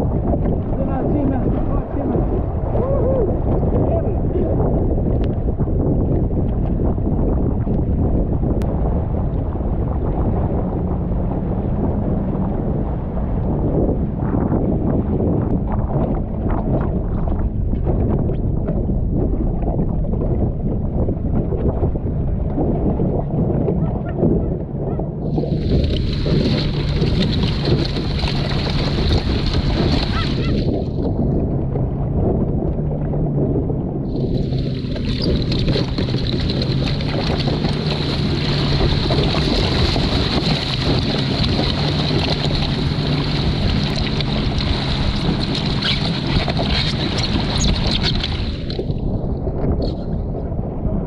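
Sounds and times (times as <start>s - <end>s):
rush of wind: 0.0s - 51.0s
water rushing around boat: 0.0s - 51.0s.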